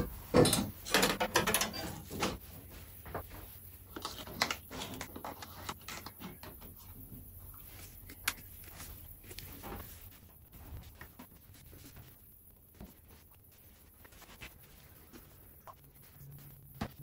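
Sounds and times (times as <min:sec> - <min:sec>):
knocks and clatters of car parts: 0:00.1 - 0:02.4.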